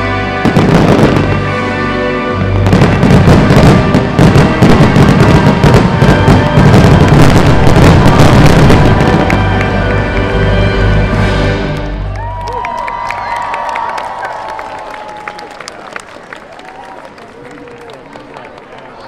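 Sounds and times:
fireworks bursting and crackling: 0.0 - 1.7, 2.3 - 11.2
loud music: 0.0 - 12.2.

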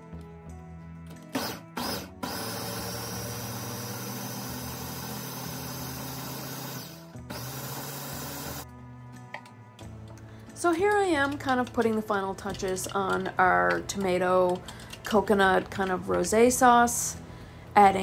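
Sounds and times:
soft background music: 0.0 - 18.0
electric food chopper motor: 1.3 - 8.6.

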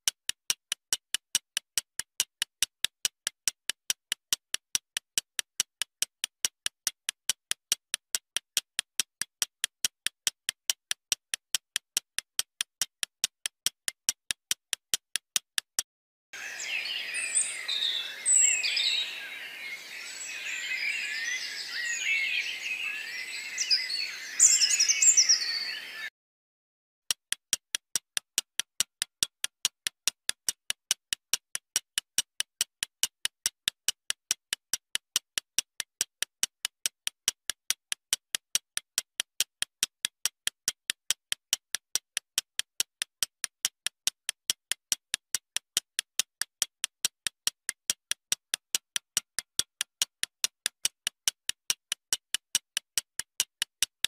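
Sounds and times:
chirping bird-like sound effect: 16.4 - 26.1.

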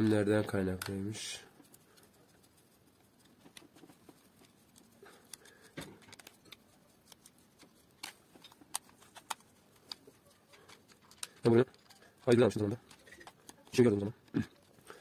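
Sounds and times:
screwdriver clicks and scrapes: 3.2 - 14.8
plastic drill body handled: 3.3 - 14.4.

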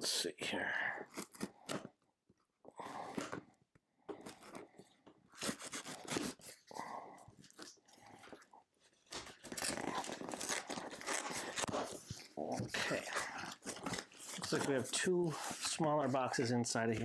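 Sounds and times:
knife slitting packing tape: 5.4 - 6.6, 9.2 - 12.1.

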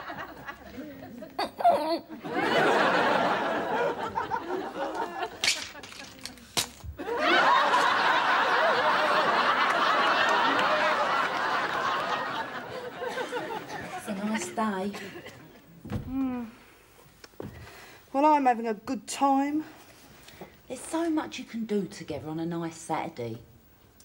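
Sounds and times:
studio audience laughing: 0.0 - 1.3, 2.1 - 6.0, 7.0 - 14.2.

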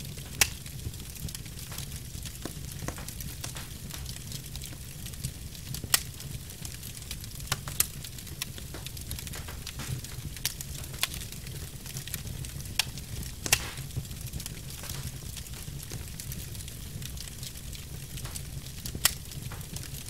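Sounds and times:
log fire crackling and popping: 0.0 - 20.0.

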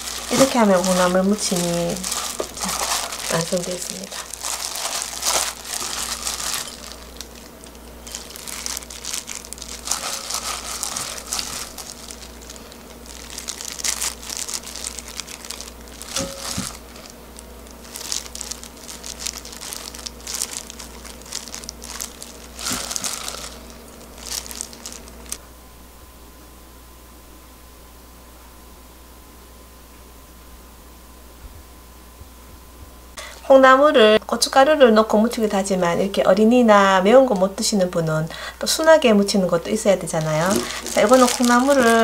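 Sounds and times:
plastic glove crinkling: 0.0 - 25.4, 35.2 - 42.0.

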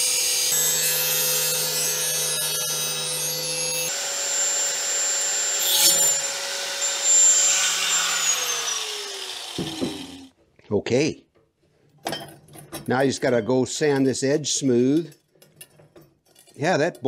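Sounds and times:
angle grinder cutting metal: 0.0 - 10.3.

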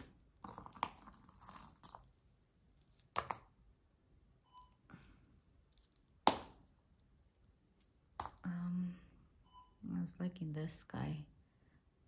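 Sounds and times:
metal jewelry clinking: 0.0 - 8.5.

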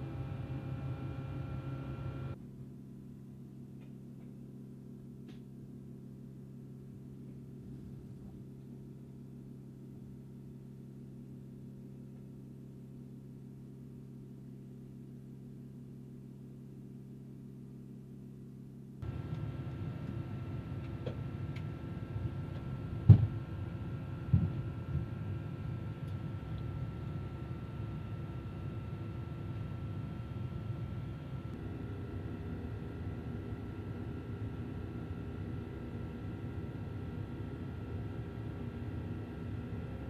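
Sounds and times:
aircraft cabin drone: 0.0 - 2.4, 19.0 - 40.0.

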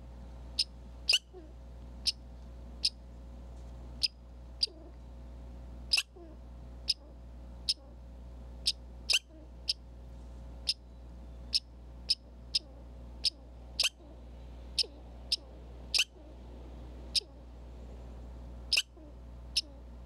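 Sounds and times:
steady low hum: 0.0 - 20.0
squirrel chipping calls: 0.5 - 2.2, 2.8 - 3.0, 4.0 - 5.0, 5.8 - 8.0, 8.6 - 9.9, 10.6 - 17.6, 18.6 - 19.9.

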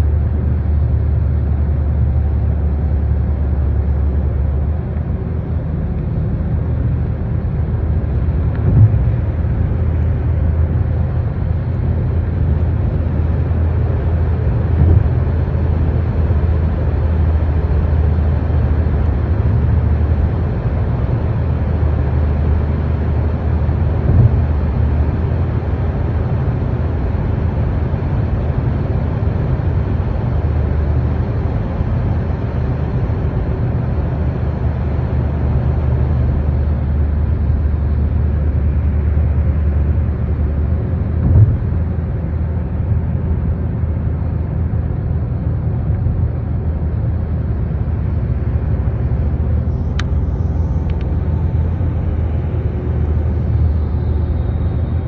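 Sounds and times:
car cabin engine and tyre rumble: 0.0 - 55.0
brief thumps: 8.5 - 9.2, 41.2 - 41.7.

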